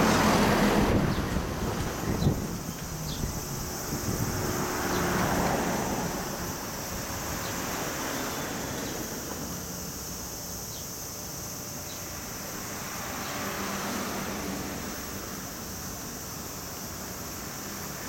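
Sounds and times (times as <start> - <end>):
wind on microphone: 0.3 - 6.1.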